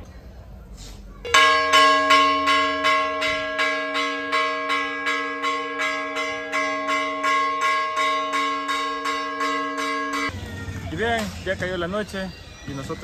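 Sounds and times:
church bell ringing: 0:01.3 - 0:10.3.

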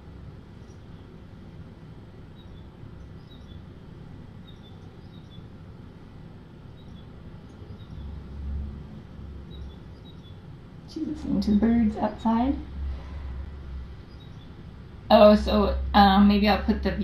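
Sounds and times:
low room hum: 0:00.0 - 0:17.0
small birds chirping: 0:02.2 - 0:08.4, 0:09.3 - 0:13.0, 0:13.6 - 0:16.7.

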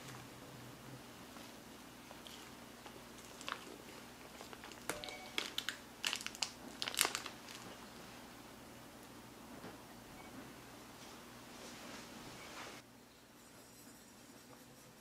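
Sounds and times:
foil wrapper crinkling: 0:02.1 - 0:07.8.

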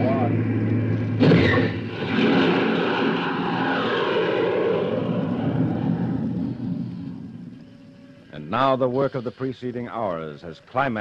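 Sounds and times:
rocket engine roar: 0:00.0 - 0:08.9
missile launch blast: 0:01.1 - 0:07.2.

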